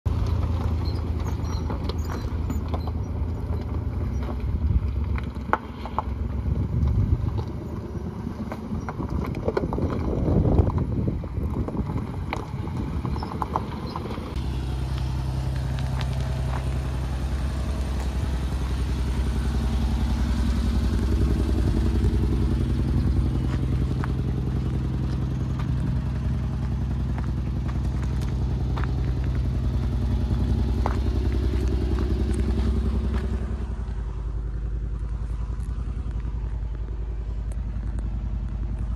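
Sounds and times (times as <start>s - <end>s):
car engine idling: 0.0s - 38.9s
footsteps on gravel: 8.4s - 38.9s.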